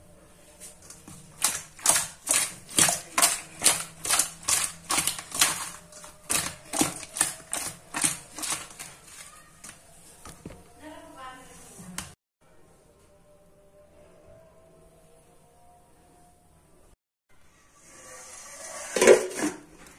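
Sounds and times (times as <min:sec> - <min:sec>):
fish mixed in steel bowl: 0:00.7 - 0:09.8.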